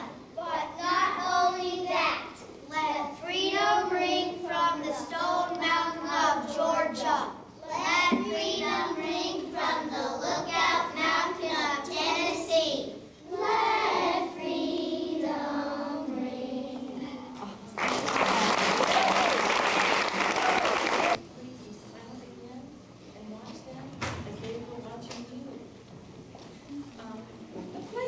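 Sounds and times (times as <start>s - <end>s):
children singing: 13.3s - 17.3s.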